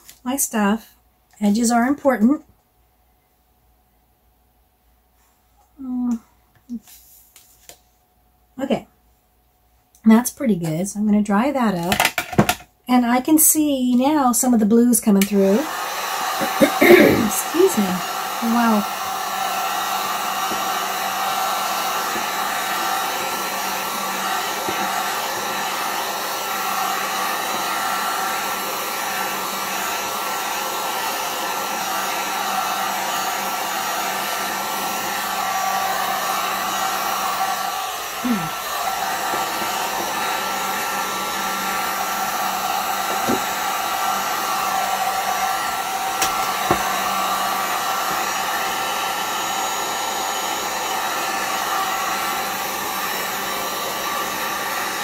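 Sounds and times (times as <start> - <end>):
heat gun blowing air: 15.3 - 55.0.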